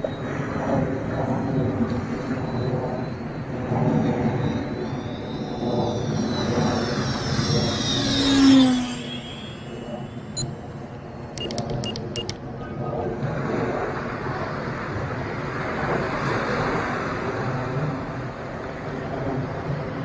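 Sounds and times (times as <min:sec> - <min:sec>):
electric ducted fan whining: 0:02.7 - 0:12.4.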